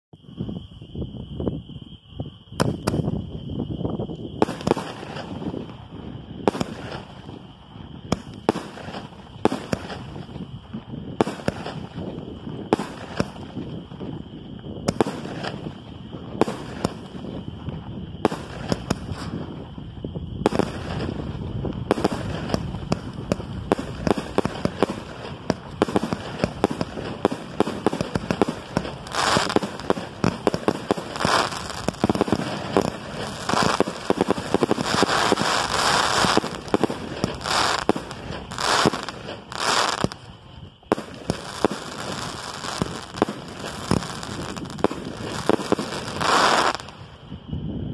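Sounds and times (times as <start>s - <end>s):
crackling firework stars: 0.2s - 47.9s
firework bangs overhead: 4.3s - 47.0s.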